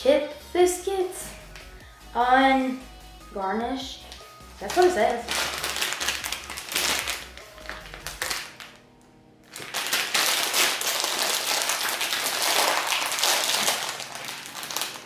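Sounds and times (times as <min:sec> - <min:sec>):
crisp packet crinkling: 0:04.6 - 0:08.8, 0:09.4 - 0:15.0.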